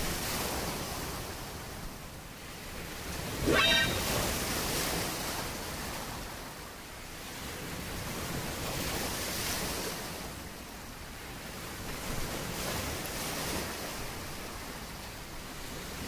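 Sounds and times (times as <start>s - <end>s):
ocean surf on beach: 0.0s - 4.9s.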